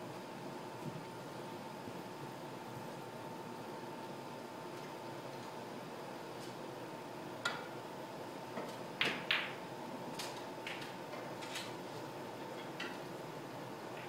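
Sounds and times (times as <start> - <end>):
snooker balls clicking: 8.5 - 9.6.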